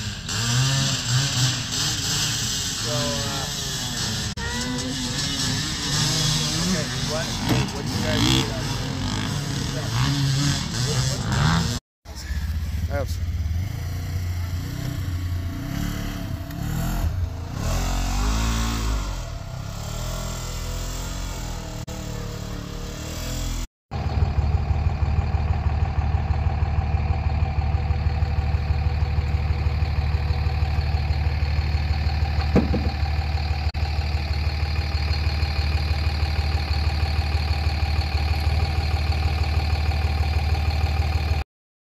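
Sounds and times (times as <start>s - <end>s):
engine idling: 12.1s - 17.9s, 23.9s - 41.4s.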